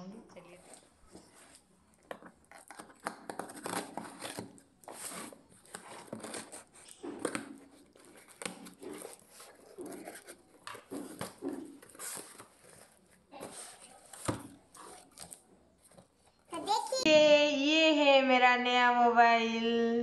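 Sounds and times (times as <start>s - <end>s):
tape tearing: 0.6s - 16.2s
cardboard scraping and rustling: 0.6s - 16.4s
knife slitting packing tape: 2.5s - 12.9s.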